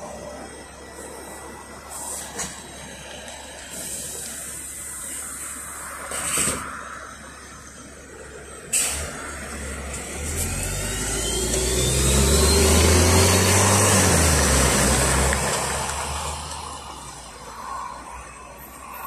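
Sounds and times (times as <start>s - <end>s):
bus accelerating past: 0.0s - 19.0s
rising engine whine: 0.0s - 19.0s.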